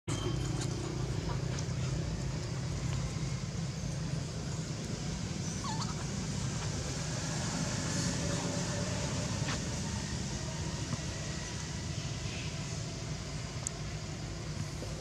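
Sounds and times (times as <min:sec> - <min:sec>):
steady low hum: 0:00.1 - 0:15.0
monkey squeaking: 0:05.4 - 0:06.2.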